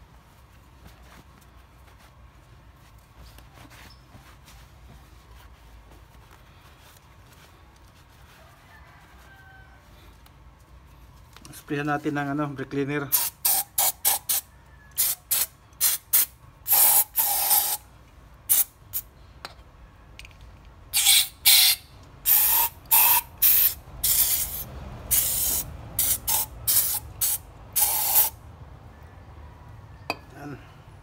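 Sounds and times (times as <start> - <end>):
aerosol spray hissing: 15.0 - 17.8, 21.0 - 28.4.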